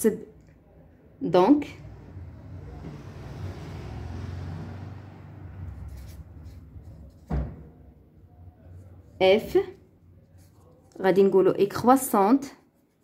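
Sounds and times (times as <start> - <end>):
marker scratching on paper: 5.6 - 7.3, 8.8 - 11.0
low thump: 7.2 - 7.8.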